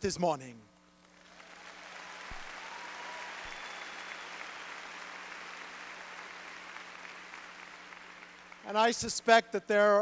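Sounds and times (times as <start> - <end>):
audience applauding: 1.2 - 8.8.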